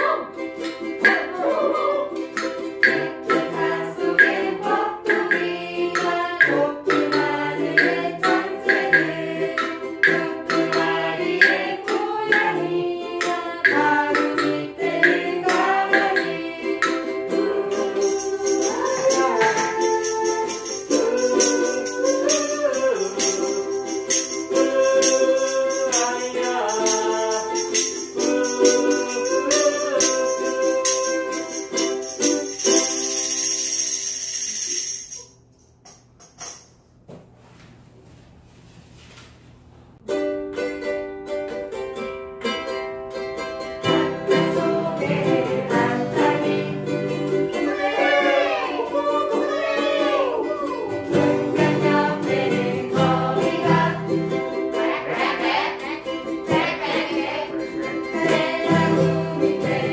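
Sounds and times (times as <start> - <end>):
voices singing a children's song: 0.0 - 33.4, 43.8 - 59.9
ukulele ensemble playing: 0.0 - 35.2, 40.0 - 59.9
tambourine jingles: 17.7 - 37.0.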